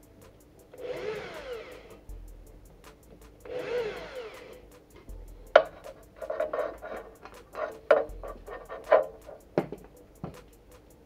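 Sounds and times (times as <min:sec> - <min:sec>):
background music with ticking beat: 0:00.0 - 0:11.0
electric drill boring into wood: 0:00.8 - 0:02.0, 0:03.5 - 0:04.6.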